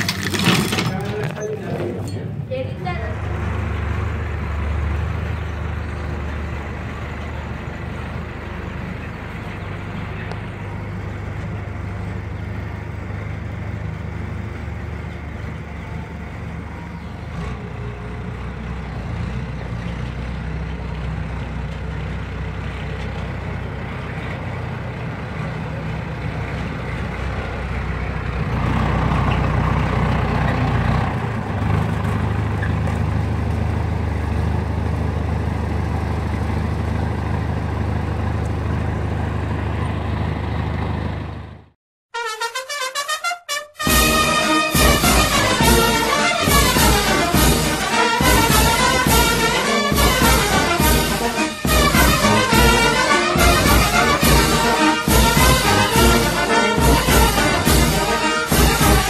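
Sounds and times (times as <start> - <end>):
truck engine running: 0.0 - 41.8, 43.8 - 59.0.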